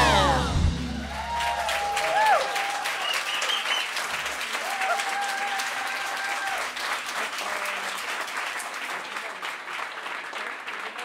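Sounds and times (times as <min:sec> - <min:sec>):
long high held note: 0:00.0 - 0:01.9
audience applauding: 0:00.0 - 0:11.0.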